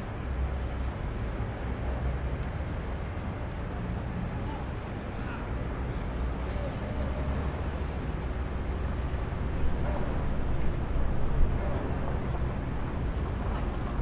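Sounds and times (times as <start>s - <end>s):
low engine rumble: 0.0s - 14.0s.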